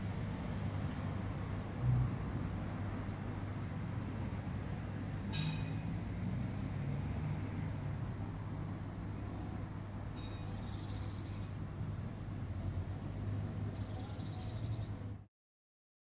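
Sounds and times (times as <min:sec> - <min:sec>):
bird chirping and trilling: 0:10.3 - 0:11.6.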